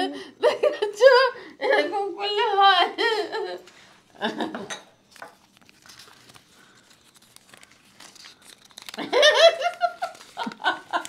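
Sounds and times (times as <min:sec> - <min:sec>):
paper crinkling and rustling: 0:05.0 - 0:11.0.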